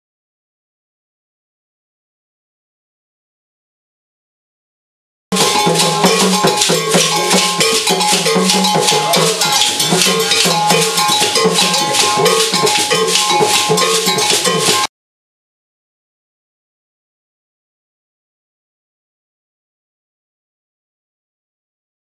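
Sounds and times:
low repeating melodic figure: 0:05.3 - 0:14.9
ringing bell: 0:05.3 - 0:14.9
fast shaker rattle: 0:05.4 - 0:14.9.

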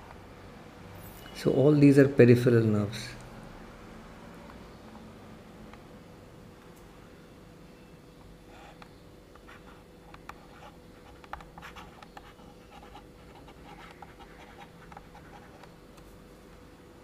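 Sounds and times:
steady low hum: 0:00.0 - 0:17.0
stylus tapping and scratching: 0:08.6 - 0:16.2.

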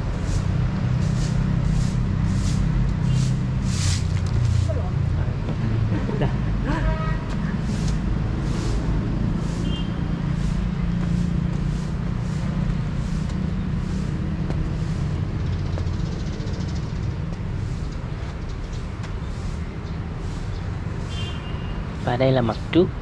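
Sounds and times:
road traffic rumble: 0:00.0 - 0:23.0
vehicle engine humming: 0:00.0 - 0:23.0
footsteps on stone steps: 0:10.5 - 0:16.0.

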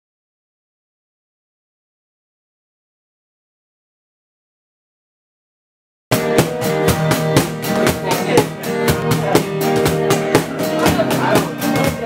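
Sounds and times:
acoustic guitar: 0:06.1 - 0:12.0
steady drum beat: 0:06.1 - 0:12.0.

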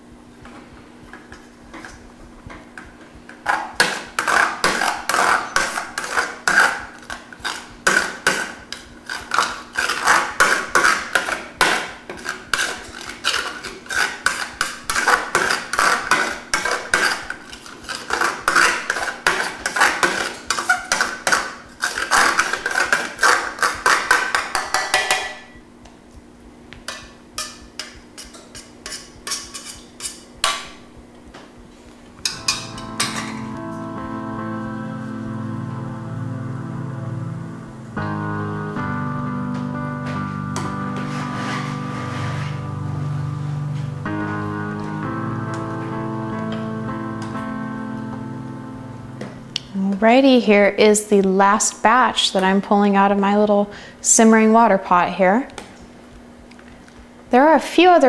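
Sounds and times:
steady low hum: 0:00.0 - 0:58.0
spoon scraping metal colander: 0:03.8 - 0:25.3, 0:27.4 - 0:30.3, 0:41.0 - 0:42.7.

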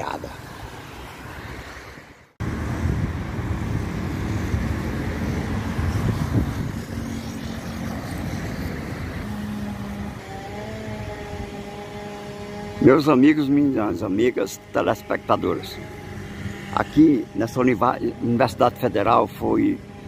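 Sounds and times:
cars passing: 0:00.0 - 0:20.0
steady low hum: 0:02.4 - 0:20.0.

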